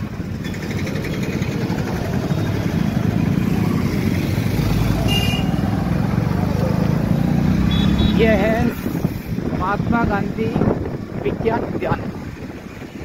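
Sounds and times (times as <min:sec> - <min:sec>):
motorcycle engine rumble: 0:00.0 - 0:10.0
horn beep: 0:05.0 - 0:05.6, 0:07.7 - 0:08.2.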